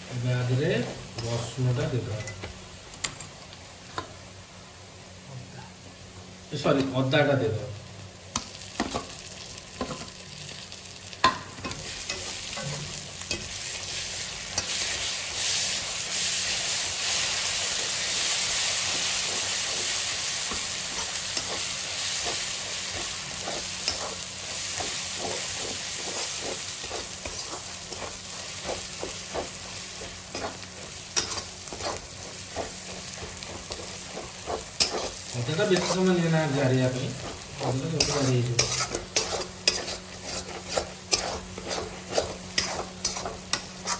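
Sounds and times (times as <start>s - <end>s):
food sizzling in hot oil: 0.0s - 43.9s
spatula scraping wok: 11.4s - 43.9s.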